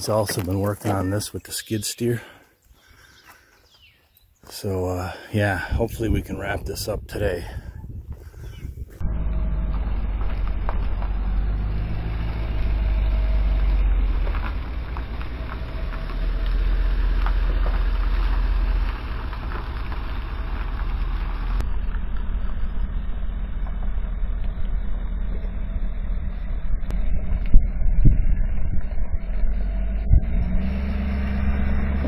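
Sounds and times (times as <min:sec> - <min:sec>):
pickup truck engine running: 0:09.0 - 0:32.0.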